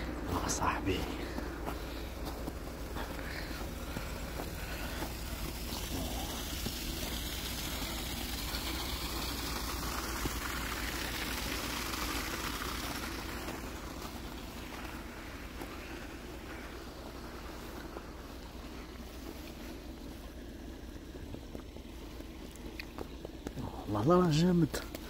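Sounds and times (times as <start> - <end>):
low road rumble: 0.0 - 25.0
tyre hiss on wet road: 3.2 - 21.0.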